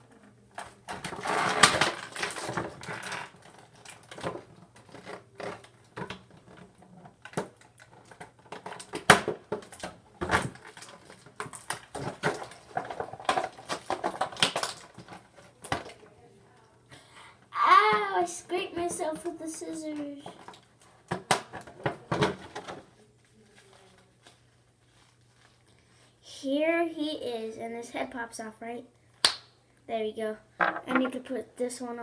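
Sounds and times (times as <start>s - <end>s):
clicks taps and rustles: 0.5s - 16.1s
packaging crinkling and tearing: 1.0s - 6.6s, 7.2s - 15.7s.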